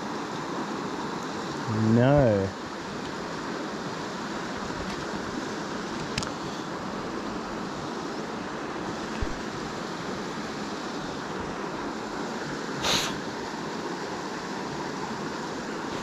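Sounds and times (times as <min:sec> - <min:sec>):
river water rushing: 0:00.0 - 0:16.0
short hissing swish: 0:12.8 - 0:13.2.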